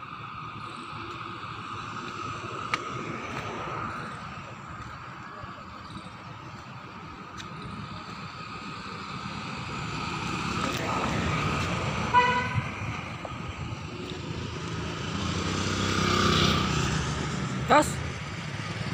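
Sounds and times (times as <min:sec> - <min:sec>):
road traffic passing: 0:00.0 - 0:18.9
short vehicle horn toot: 0:12.1 - 0:12.6.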